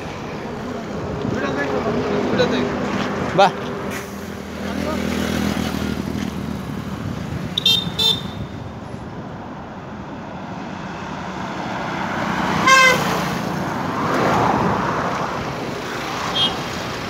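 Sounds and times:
passing road traffic: 0:00.0 - 0:17.0
horn beeps: 0:07.6 - 0:08.6.

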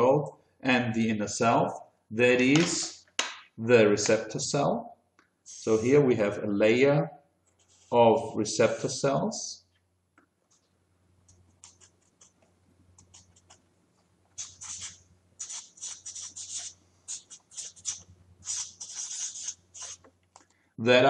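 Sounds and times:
marker pen scratching on paper: 0:11.5 - 0:20.2.

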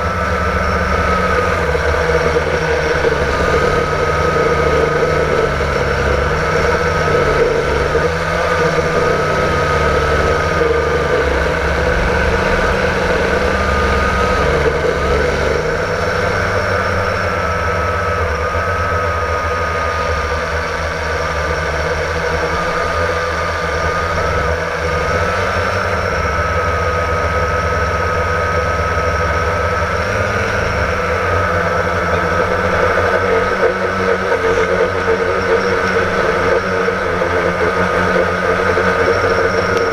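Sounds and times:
low rumble: 0:00.0 - 0:26.0
drone propellers whining: 0:00.0 - 0:39.9.

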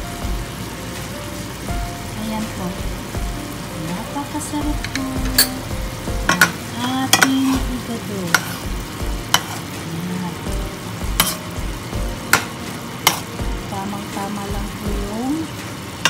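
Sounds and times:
spoon knocking against metal pan: 0:04.7 - 0:05.6, 0:06.3 - 0:07.6, 0:11.1 - 0:11.4
spoon stirring food in pan: 0:04.7 - 0:09.9, 0:10.5 - 0:13.6.

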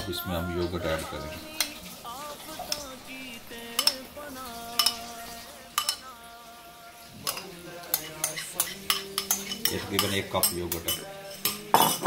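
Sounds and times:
spoon clinking against bowls: 0:03.6 - 0:05.1, 0:05.8 - 0:06.1, 0:07.2 - 0:12.0.

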